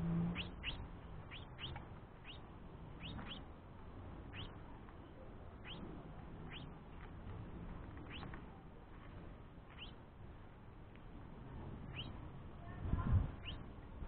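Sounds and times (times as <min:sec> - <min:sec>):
fledgling finch begging chirps: 0:00.1 - 0:03.5, 0:04.2 - 0:04.7, 0:05.5 - 0:06.8, 0:08.0 - 0:08.4, 0:09.7 - 0:10.0, 0:11.8 - 0:12.2, 0:13.3 - 0:13.8.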